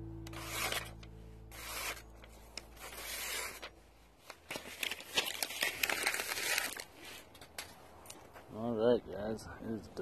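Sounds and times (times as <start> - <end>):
knife slicing paper: 0.3 - 7.3
paper rustling and crinkling: 0.3 - 8.4.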